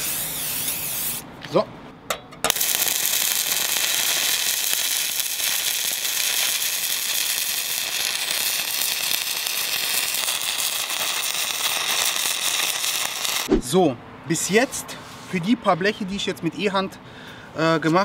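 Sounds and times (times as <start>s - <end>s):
welding arc crackling: 0.0s - 1.2s, 2.5s - 13.5s.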